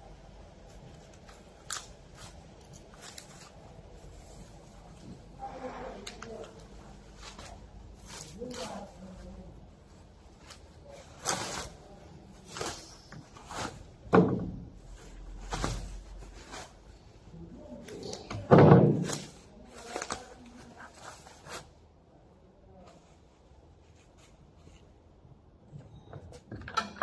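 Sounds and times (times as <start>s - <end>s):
plastic wrapping crinkling: 0.7s - 14.1s, 17.6s - 21.8s.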